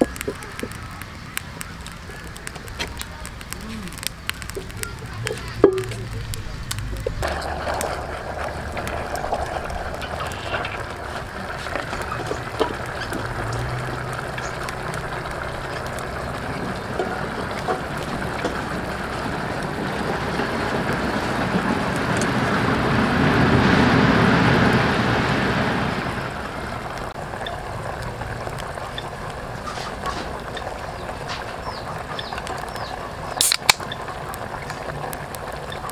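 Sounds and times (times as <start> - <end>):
steady background noise: 0.0 - 35.9
beer pouring into metal pot: 3.4 - 22.6.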